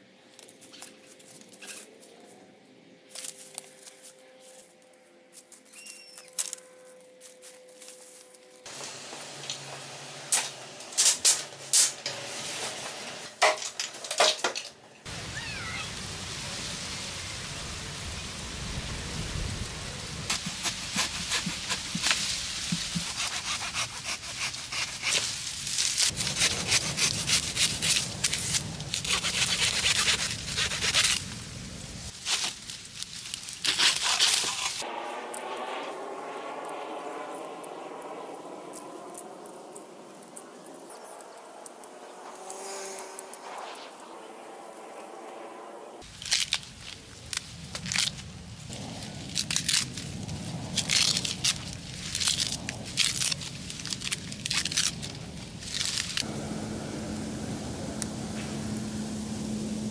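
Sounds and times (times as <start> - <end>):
dry reeds rustling and snapping: 0.3 - 2.4, 3.1 - 8.7, 10.3 - 12.0, 20.3 - 35.9, 37.4 - 44.1, 46.0 - 56.3
steady hiss: 15.1 - 24.6, 42.4 - 59.9.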